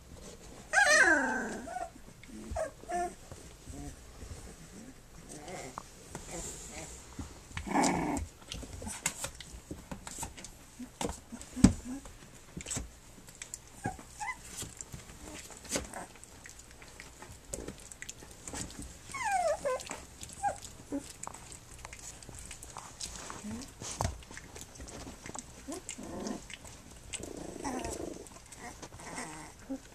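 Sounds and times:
puppies scuffling: 0:00.0 - 0:29.9
puppy whining: 0:00.7 - 0:06.9, 0:13.7 - 0:16.4, 0:17.5 - 0:29.9
puppy squeaks: 0:19.1 - 0:19.8.

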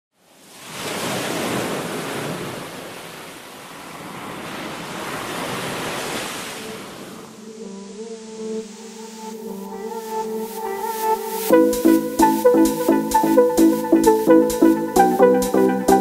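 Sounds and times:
ocean surf washing on shore: 0:00.4 - 0:08.0.

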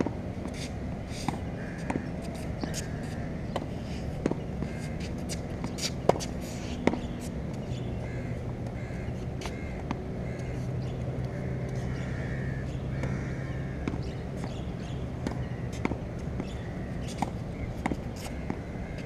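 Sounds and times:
steady low hum: 0:00.0 - 0:19.0
distant birds calling: 0:00.4 - 0:19.0.

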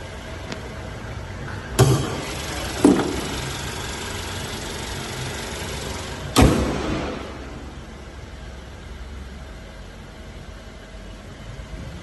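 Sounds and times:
car engine idling: 0:00.0 - 0:12.0
car bonnet slamming shut: 0:02.8 - 0:03.4, 0:06.4 - 0:07.5
thud: 0:06.4 - 0:07.5.

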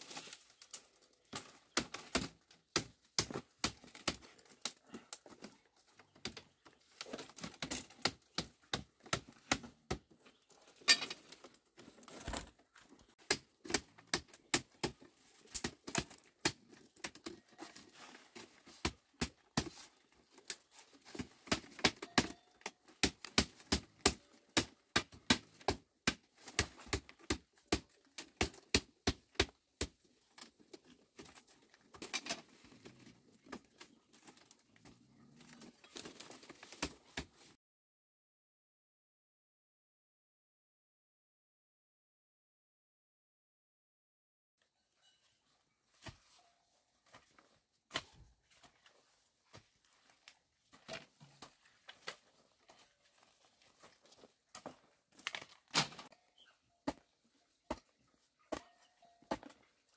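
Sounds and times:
machete chopping bamboo: 0:01.3 - 0:04.8, 0:07.4 - 0:10.1, 0:13.2 - 0:17.3, 0:20.5 - 0:30.0.

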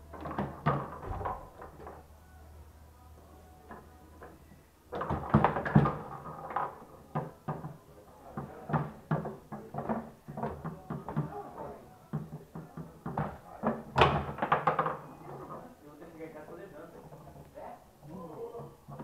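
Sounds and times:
foosball ball and rods knocking: 0:00.1 - 0:02.0, 0:03.7 - 0:11.4, 0:12.1 - 0:15.6.

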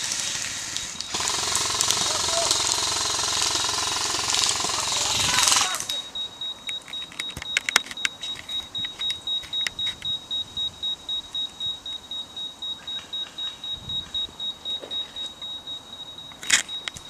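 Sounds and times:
rapid high electronic beeps: 0:00.0 - 0:17.0
sharp clicks: 0:00.7 - 0:12.1, 0:12.9 - 0:17.0.

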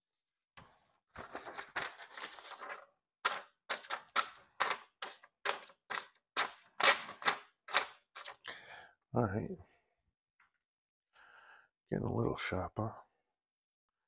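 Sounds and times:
paper rustling: 0:01.1 - 0:08.4
knife cutting paper: 0:01.2 - 0:08.4.

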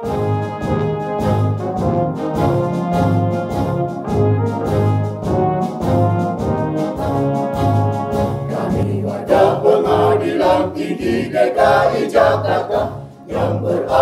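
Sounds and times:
brass phrase: 0:00.0 - 0:10.5
band with drum beat: 0:00.0 - 0:13.0
choir singing march anthem: 0:05.9 - 0:14.0.

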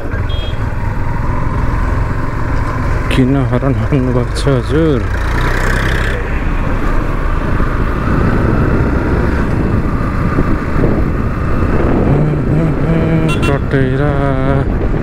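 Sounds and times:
motorcycle engine and road noise: 0:00.0 - 0:15.0
wind rushing over microphone: 0:06.2 - 0:15.0.

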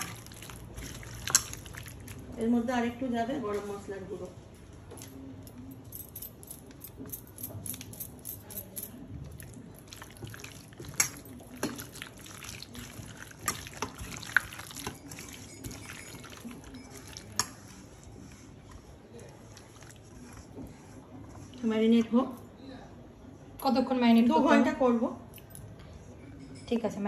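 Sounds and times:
meat squelching in marinade: 0:00.0 - 0:02.4, 0:09.2 - 0:21.6.

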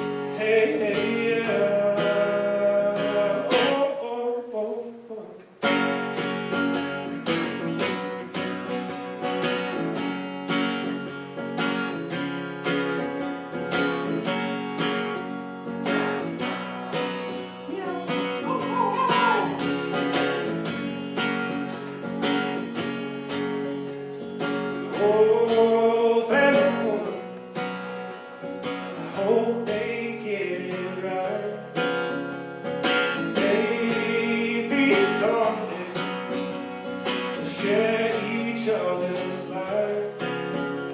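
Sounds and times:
acoustic guitar strumming: 0:00.0 - 0:40.9
person singing: 0:00.4 - 0:05.4, 0:17.7 - 0:20.7, 0:33.2 - 0:36.1.

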